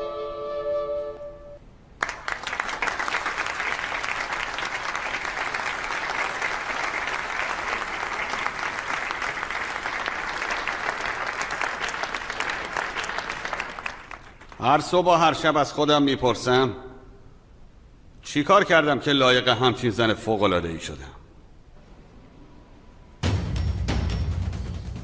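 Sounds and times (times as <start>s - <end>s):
crowd applause: 2.0s - 14.6s.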